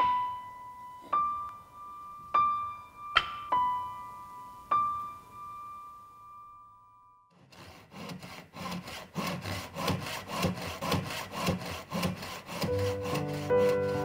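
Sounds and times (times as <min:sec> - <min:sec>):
hand saw cutting wood: 0:07.3 - 0:14.0.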